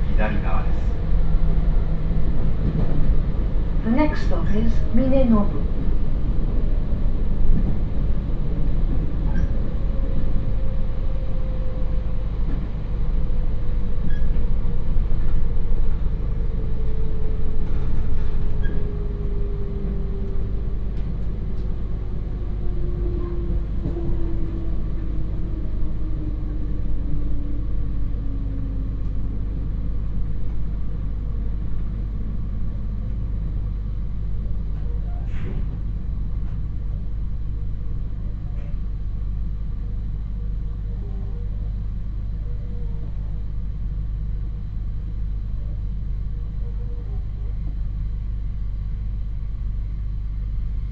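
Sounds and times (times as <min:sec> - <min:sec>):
train wheels rumbling: 0:00.0 - 0:37.2
train motor whine: 0:00.0 - 0:45.2.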